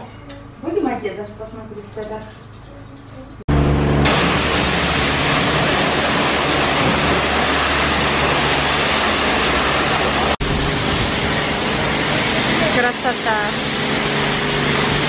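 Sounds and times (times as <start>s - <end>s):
low hum: 3.5s - 14.8s
high-pressure water spraying: 4.0s - 15.0s.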